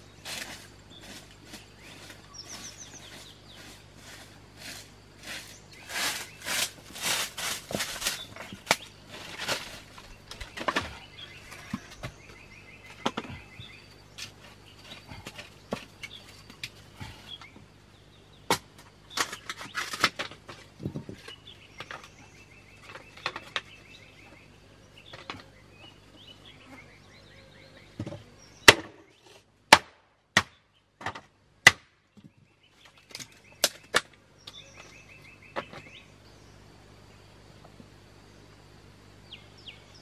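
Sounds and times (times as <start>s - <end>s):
wooden logs scraping and knocking: 0.0s - 17.7s, 18.5s - 26.3s
birds chirping: 0.0s - 29.4s, 32.0s - 40.0s.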